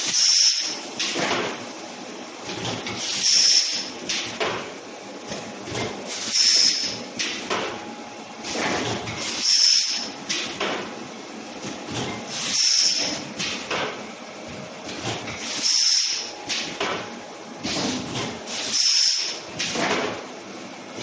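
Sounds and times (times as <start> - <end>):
pneumatic air hiss: 0.0 - 0.8, 2.9 - 3.9, 6.1 - 7.0, 8.4 - 10.1, 12.3 - 13.2, 15.4 - 16.3, 17.7 - 19.8
machine clacks and rattles: 1.0 - 1.6, 8.5 - 10.9, 14.8 - 20.2.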